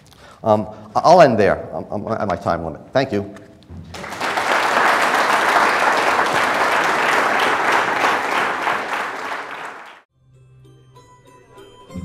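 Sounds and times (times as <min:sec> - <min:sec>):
audience applauding: 0:03.9 - 0:10.1.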